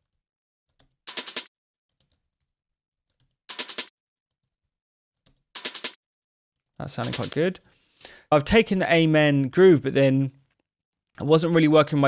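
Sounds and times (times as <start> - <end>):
computer keyboard keys tapping: 0.0 - 2.5, 3.1 - 6.0, 7.0 - 7.4.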